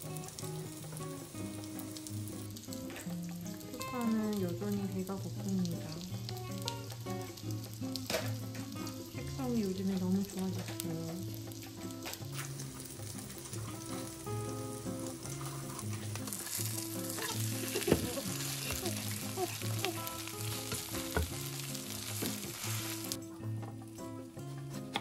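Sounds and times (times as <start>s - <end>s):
pancake sizzling in oil: 0.0s - 24.6s
soft background music: 0.0s - 25.0s
spatula knocking on pan: 20.6s - 22.4s.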